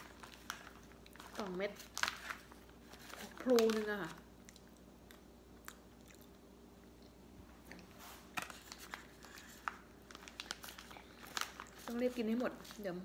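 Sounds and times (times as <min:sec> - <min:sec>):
plastic wrapping crinkling: 0:00.0 - 0:04.3, 0:08.0 - 0:13.0
soft chewing: 0:00.2 - 0:01.4, 0:04.4 - 0:11.8.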